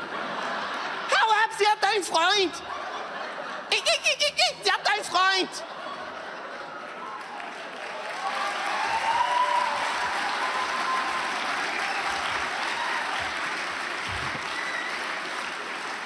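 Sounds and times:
audience applauding: 6.5s - 16.0s.

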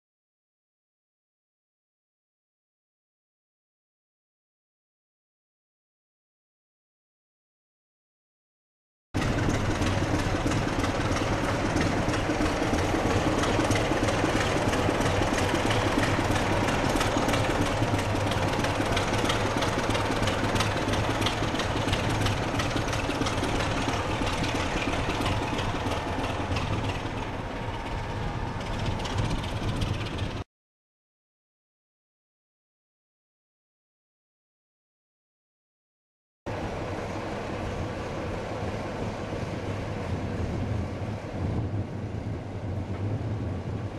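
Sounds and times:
diesel locomotive engine idling: 9.2s - 30.4s, 36.5s - 43.9s.

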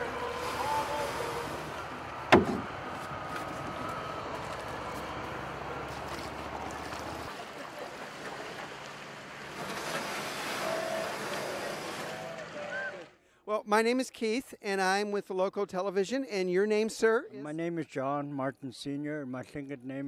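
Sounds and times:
sharp loud knock: 2.3s - 2.7s.

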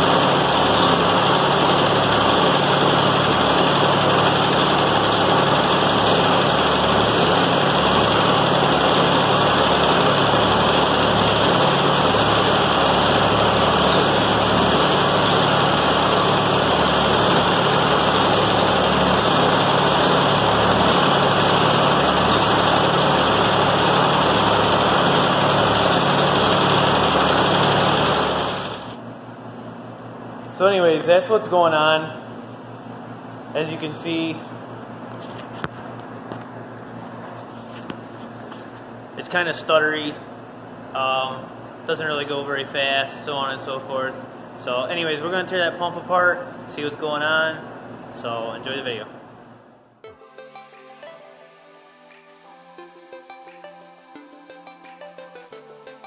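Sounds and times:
tractor engine idling: 0.0s - 29.0s.

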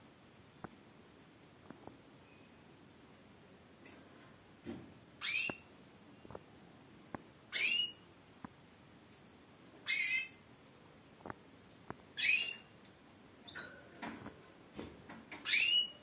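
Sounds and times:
canary calling: 5.2s - 5.7s, 7.5s - 8.0s, 9.8s - 10.4s, 12.2s - 12.7s, 15.4s - 16.0s
faint light ticks: 12.8s - 13.0s.

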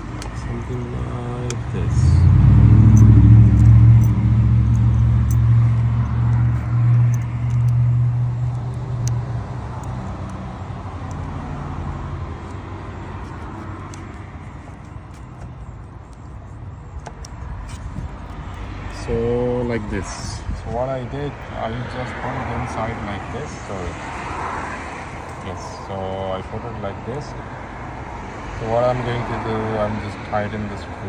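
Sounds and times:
light metallic clicks: 0.0s - 1.8s, 2.9s - 10.4s
car engine running: 0.0s - 18.6s.

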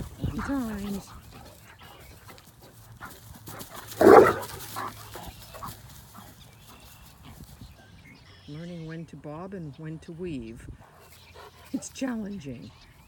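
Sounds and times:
dog barking: 3.9s - 5.7s.

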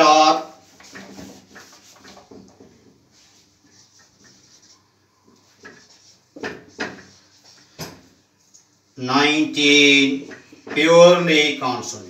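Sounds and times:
marker scratching on whiteboard: 0.3s - 7.8s.

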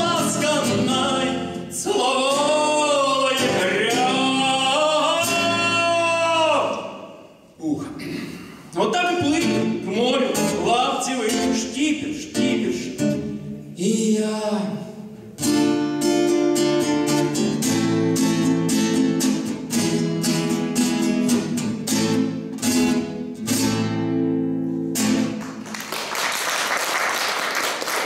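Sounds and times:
nylon-string guitar strumming: 0.0s - 7.1s, 9.2s - 13.7s, 15.2s - 25.4s
man singing: 0.0s - 7.9s, 8.8s - 15.2s
applause: 25.4s - 28.0s.

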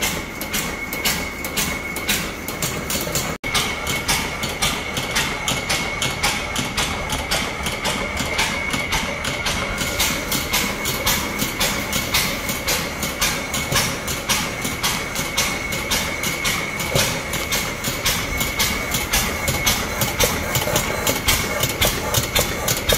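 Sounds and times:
engine rhythmic clatter: 0.0s - 22.9s.

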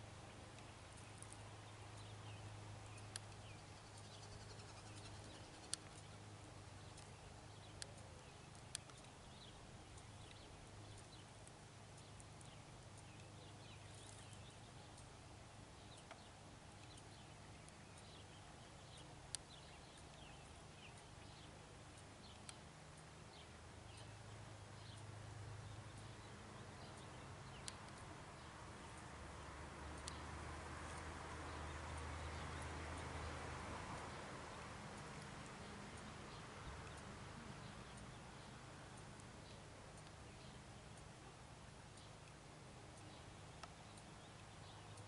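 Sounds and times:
faint high chirps and ticks: 0.0s - 45.0s
low steady hum: 0.0s - 45.0s
sharp clicks: 2.8s - 15.1s, 15.9s - 24.2s, 26.8s - 29.1s, 29.9s - 31.1s.

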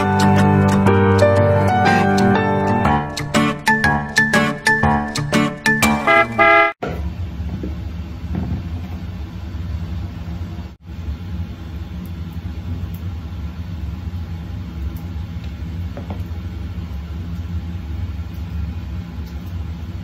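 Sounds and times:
music jingle: 0.0s - 6.8s.

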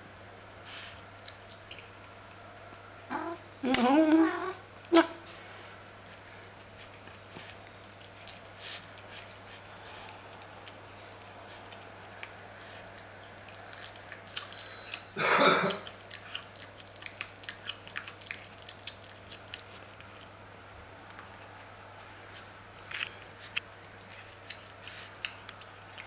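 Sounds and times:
cat chewing with crunches: 0.7s - 3.6s, 4.3s - 15.2s, 15.8s - 26.0s
cat coughing: 15.2s - 15.9s.

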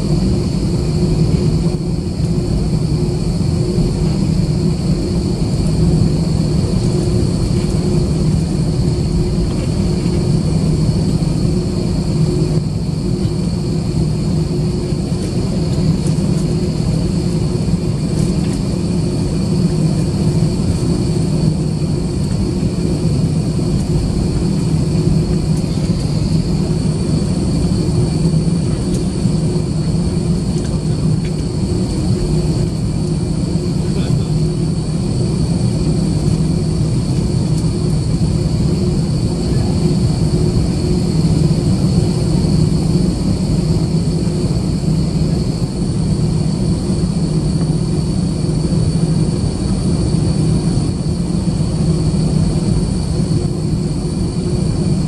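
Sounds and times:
jet engine whine: 0.0s - 55.0s
low cabin hum: 0.0s - 55.0s.

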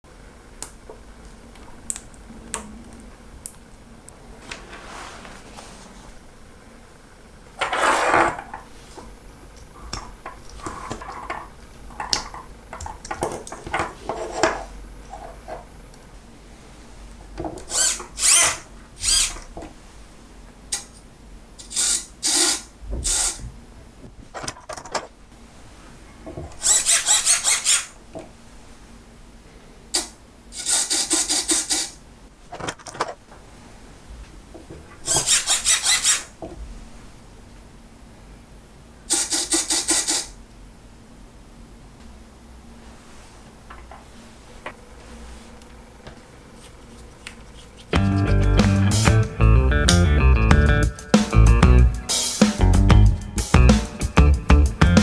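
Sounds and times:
servo motor whirring: 17.7s - 19.4s
clicks and rustles of wires: 32.5s - 33.4s.

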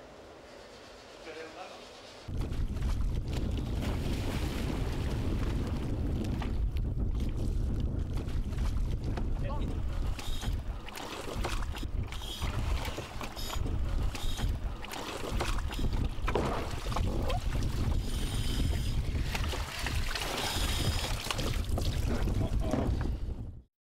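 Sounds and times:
wind rumbling on microphone: 2.3s - 23.7s
water splashing and streaming: 3.7s - 5.8s, 9.8s - 22.3s.

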